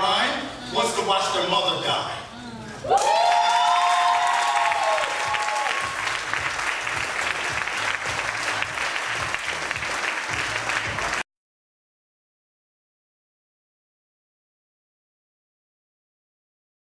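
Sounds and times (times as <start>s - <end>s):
audience cheering: 2.8s - 11.2s
audience applauding: 2.9s - 11.2s.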